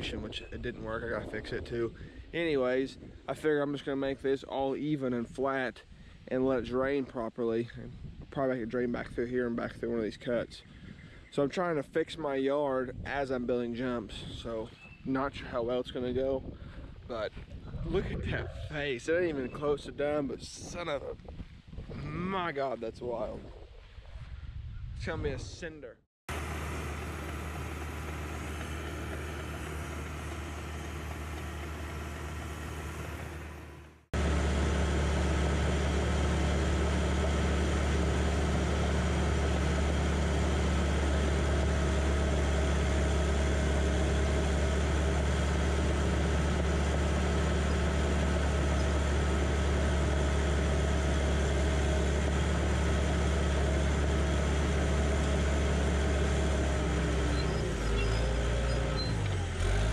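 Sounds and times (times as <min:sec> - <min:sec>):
low hum: 0:26.3 - 0:56.3
bulldozer diesel engine running: 0:26.3 - 0:59.9.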